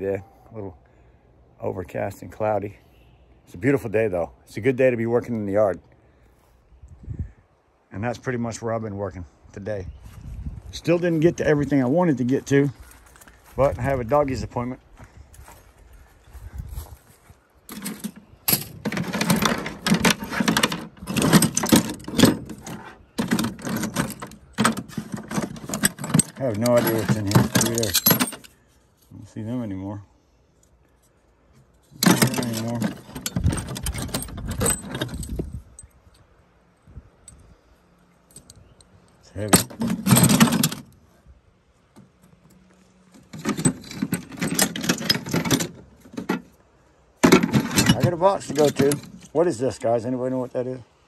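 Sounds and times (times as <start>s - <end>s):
scrap metal rattling in plastic bucket: 17.7s - 28.5s, 32.0s - 35.3s, 39.6s - 40.8s, 43.2s - 46.5s, 47.2s - 49.3s.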